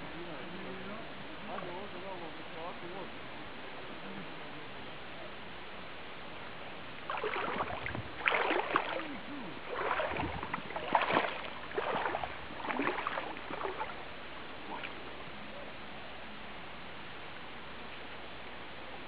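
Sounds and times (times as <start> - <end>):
water splashing: 7.0 - 15.1.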